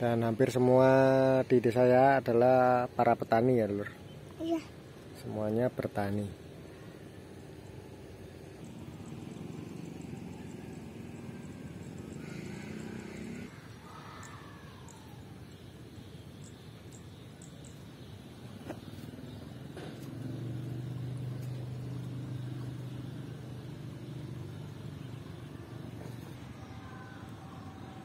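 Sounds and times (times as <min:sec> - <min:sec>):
outdoor background noise: 0:00.0 - 0:28.0
vehicle engine humming: 0:03.5 - 0:13.8, 0:14.8 - 0:28.0.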